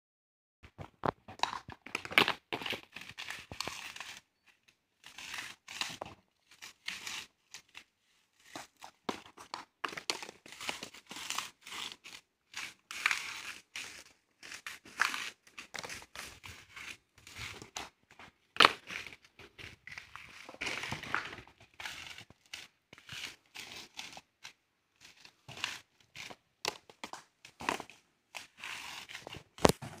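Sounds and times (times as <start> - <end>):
dry coconuts crunching and cracking: 1.0 - 4.2, 18.6 - 30.0.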